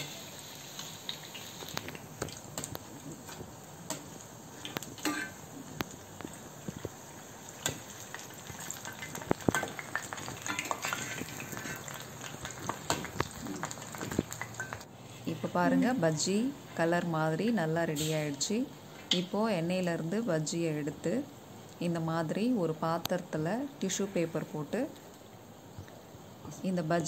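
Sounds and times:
deep-frying in hot oil: 0:00.0 - 0:15.3.

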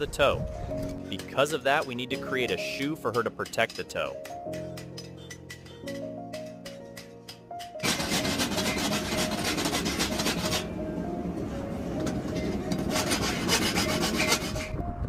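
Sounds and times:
rasp filing metal: 0:01.2 - 0:05.7, 0:07.7 - 0:10.7, 0:12.3 - 0:14.8.

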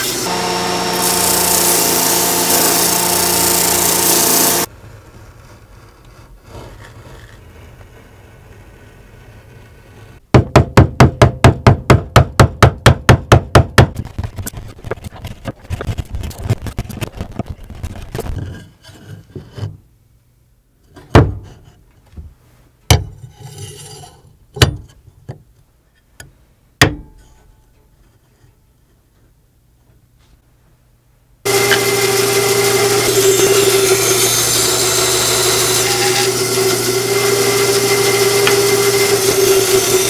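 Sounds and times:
hand tool scraping wooden board: 0:00.0 - 0:07.9, 0:13.9 - 0:19.8, 0:31.5 - 0:40.0.

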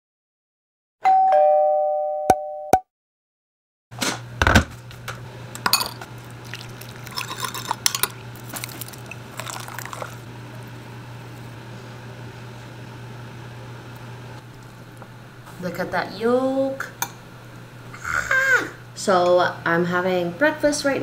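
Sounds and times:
steady low hum: 0:04.3 - 0:21.0
glass jar and spoon clinking on bowls: 0:05.6 - 0:10.2
seasoning shaken from jar: 0:06.5 - 0:10.2.

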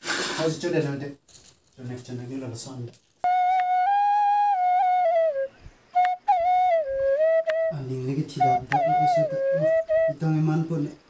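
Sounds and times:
flute melody: 0:03.2 - 0:10.9.

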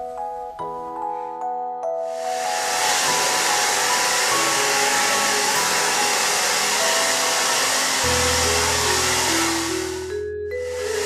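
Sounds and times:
hair dryer blowing: 0:02.1 - 0:11.0
mallet percussion music: 0:02.4 - 0:11.0.

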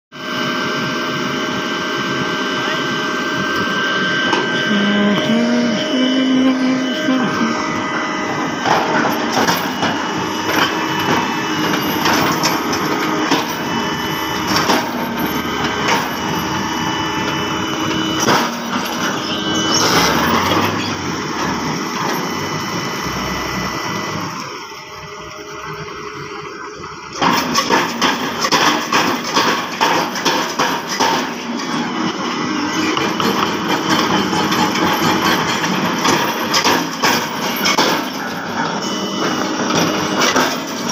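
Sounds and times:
piling rig machine running: 0:00.2 - 0:40.9
metallic knocks and clanks: 0:32.8 - 0:40.9.

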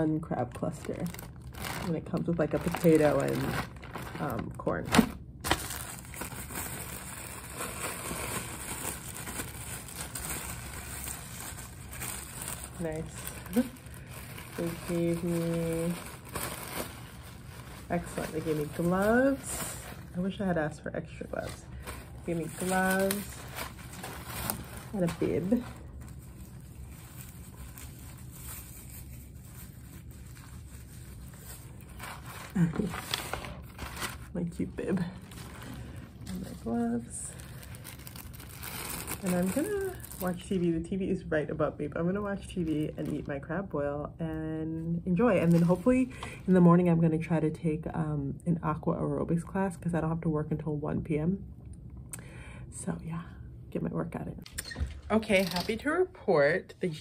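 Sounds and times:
low steady hum: 0:00.0 - 0:57.0
plastic bags rustling: 0:00.2 - 0:40.9, 0:45.1 - 0:46.6.

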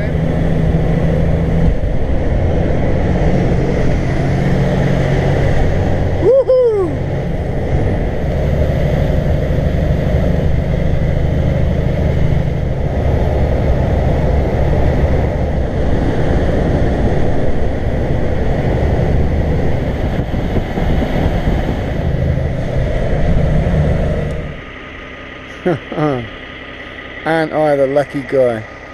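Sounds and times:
truck engine hum: 0:00.0 - 0:28.9
tyre and wind noise: 0:07.0 - 0:24.6.

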